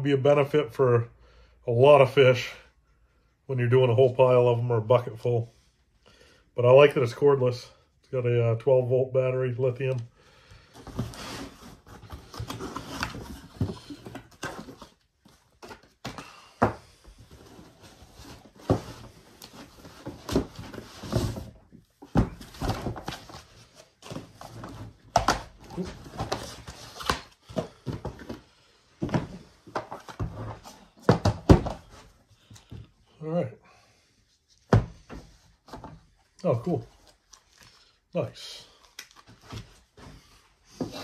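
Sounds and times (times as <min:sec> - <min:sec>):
cardboard packaging rustling: 0:10.6 - 0:32.2.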